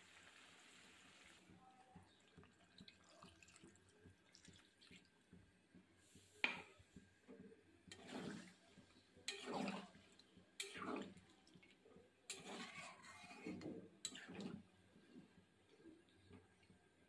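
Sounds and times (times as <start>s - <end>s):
spatula stirring wet curry: 4.6s - 16.8s.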